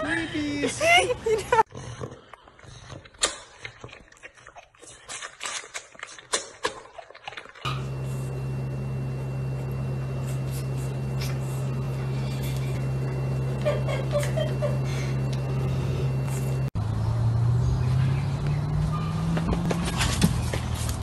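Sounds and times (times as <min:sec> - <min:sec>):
steady low hum: 0:07.6 - 0:21.0
faint high whine: 0:07.7 - 0:16.8.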